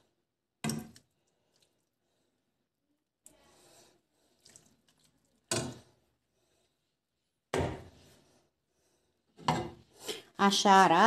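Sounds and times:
metal ladle knocking and scraping pan: 0:09.4 - 0:09.8.

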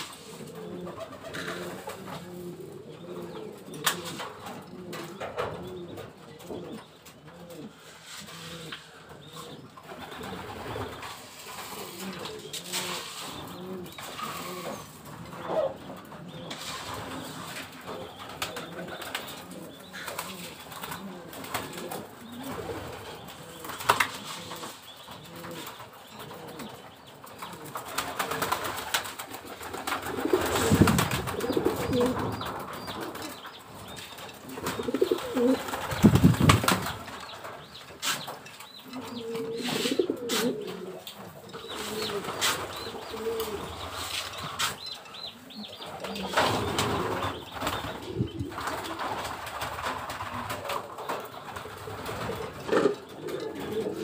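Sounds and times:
pigeons cooing: 0:00.0 - 0:54.0
wing flaps: 0:27.5 - 0:33.3, 0:34.4 - 0:37.3.

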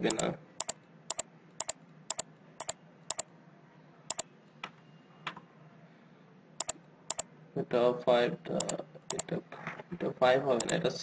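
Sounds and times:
computer keyboard and mouse clicks: 0:00.0 - 0:03.2, 0:04.1 - 0:05.4, 0:06.6 - 0:07.2, 0:08.6 - 0:09.3, 0:10.6 - 0:10.8.

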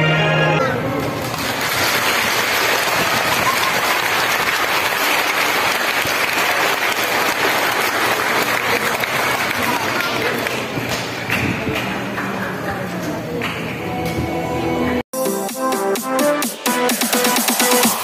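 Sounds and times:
choir music: 0:00.0 - 0:00.9
audience applauding: 0:01.2 - 0:12.6.

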